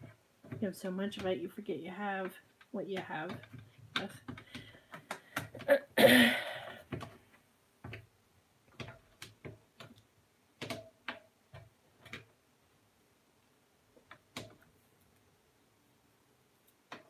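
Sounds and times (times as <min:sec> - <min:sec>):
light clicks and taps: 0:00.0 - 0:05.7.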